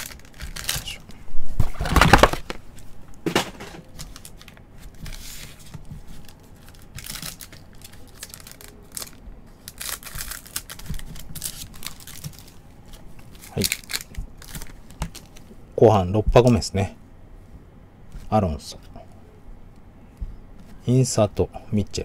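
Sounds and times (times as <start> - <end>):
card pack wrappers crinkling: 0.0 - 2.6, 3.5 - 15.5.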